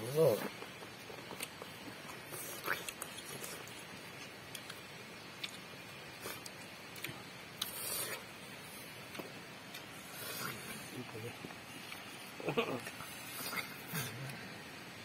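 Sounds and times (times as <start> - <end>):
chewing clicks and crunches: 0.4 - 8.1.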